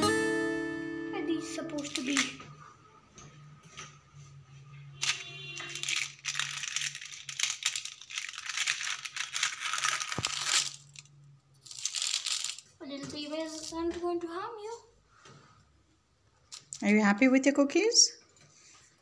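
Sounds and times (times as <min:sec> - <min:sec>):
rustling and crinkling: 0:05.0 - 0:15.6.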